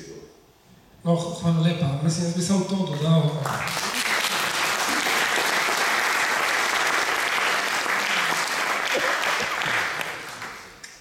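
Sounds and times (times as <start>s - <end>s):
audience applauding: 3.3s - 10.8s.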